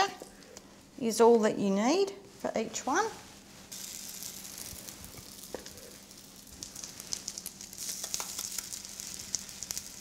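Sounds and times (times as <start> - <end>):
batter sizzling in a frying pan: 3.2 - 10.0.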